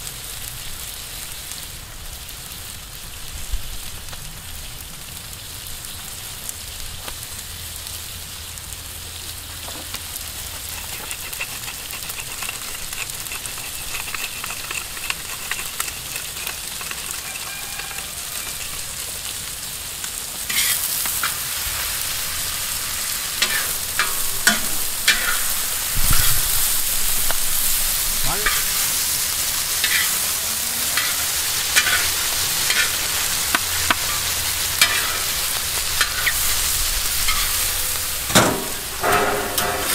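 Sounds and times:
food sizzling in a pan: 0:00.0 - 0:39.9
utensil scraping a pan: 0:09.6 - 0:19.3, 0:20.5 - 0:39.9.

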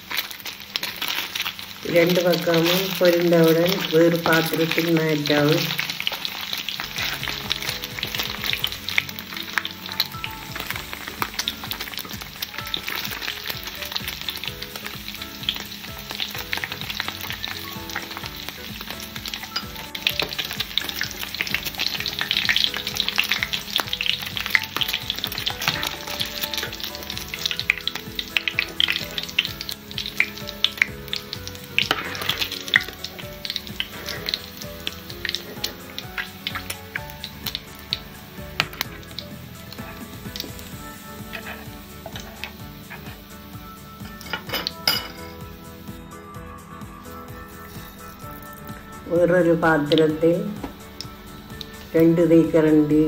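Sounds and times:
cheese sizzling in hot oil: 0:00.0 - 0:53.0
metal spoon stirring in pan: 0:05.6 - 0:43.4.

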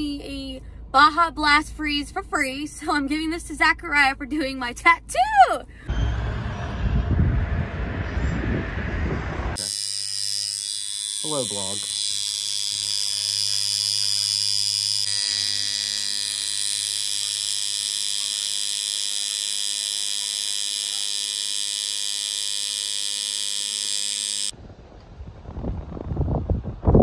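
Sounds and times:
tattoo machine buzzing: 0:09.6 - 0:24.5.

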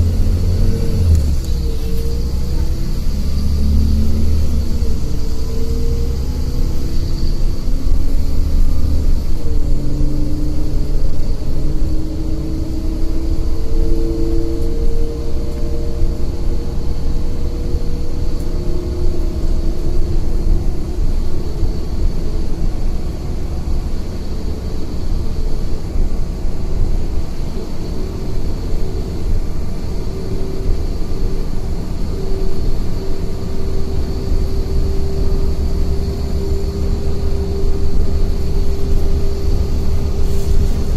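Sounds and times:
bus engine and road rumble: 0:00.0 - 0:40.9
running gear hum: 0:00.0 - 0:40.9.

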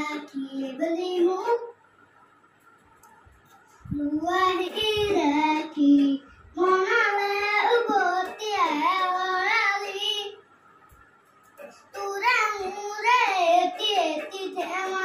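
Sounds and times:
boy singing unaccompanied: 0:00.0 - 0:01.8, 0:03.9 - 0:10.4, 0:11.6 - 0:15.0.

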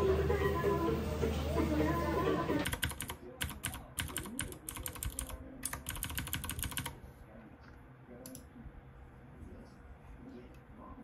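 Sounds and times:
typing on computer keyboard: 0:02.6 - 0:07.0.

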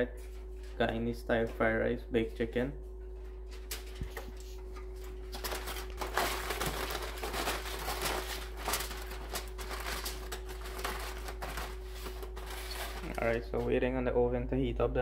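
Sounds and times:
faint steady hum: 0:00.0 - 0:15.0
aluminium foil crinkling: 0:03.5 - 0:13.6.

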